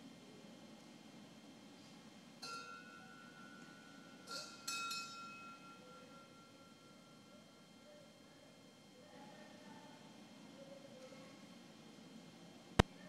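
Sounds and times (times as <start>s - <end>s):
metal vessels clinking: 4.2s - 5.9s.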